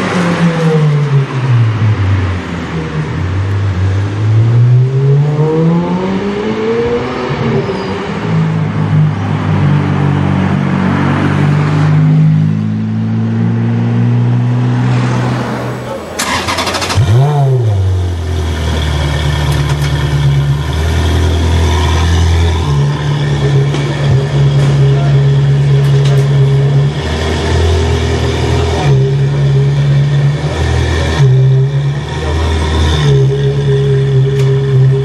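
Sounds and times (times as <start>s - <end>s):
car engine idling: 15.6s - 35.0s.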